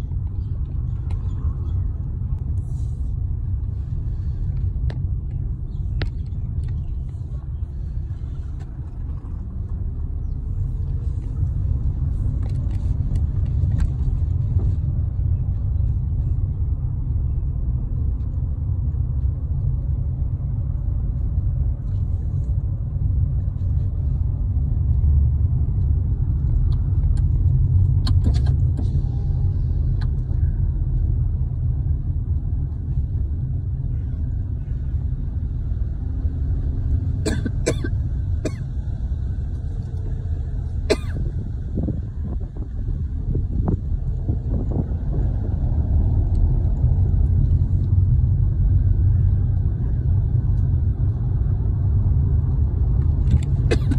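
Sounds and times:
car interior road and engine noise: 0.0s - 53.9s.

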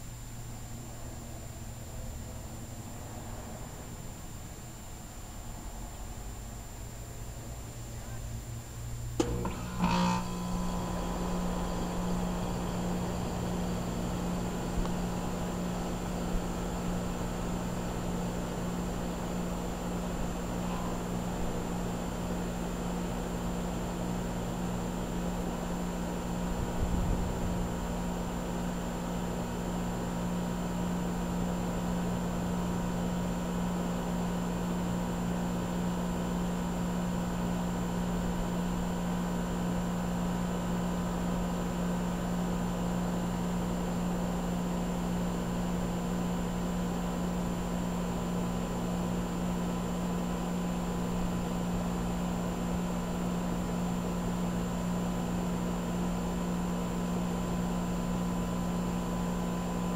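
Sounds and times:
heat pump unit humming: 0.0s - 59.9s.

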